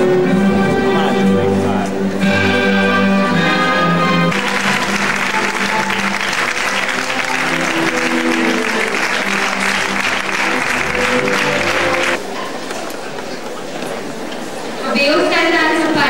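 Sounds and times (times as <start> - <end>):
music: 0.0 - 12.2
audience applauding: 3.9 - 12.3.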